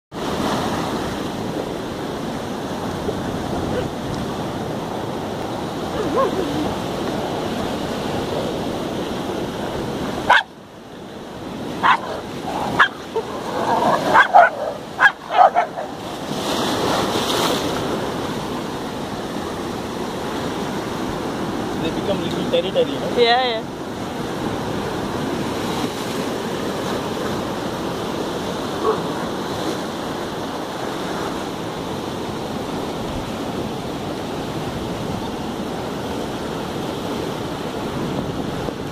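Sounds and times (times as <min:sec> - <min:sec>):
surf breaking over rocks: 0:00.1 - 0:38.9
dogs barking: 0:10.2 - 0:10.5, 0:11.8 - 0:16.0, 0:28.8 - 0:29.4.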